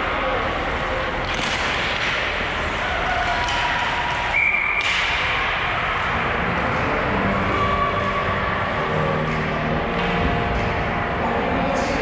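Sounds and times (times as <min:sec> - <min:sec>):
skates and sticks on ice: 0:00.0 - 0:08.2
referee's whistle: 0:04.3 - 0:04.9.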